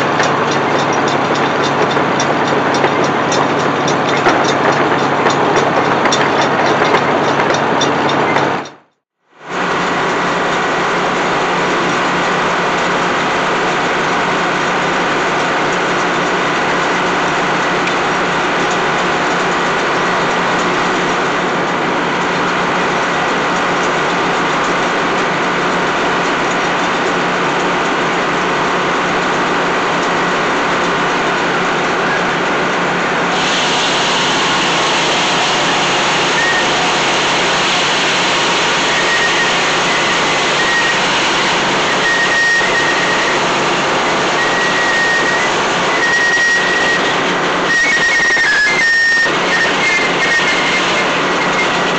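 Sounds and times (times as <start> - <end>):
sawmill engine drone: 0.0 - 51.9
saw blade hum: 31.2 - 51.9.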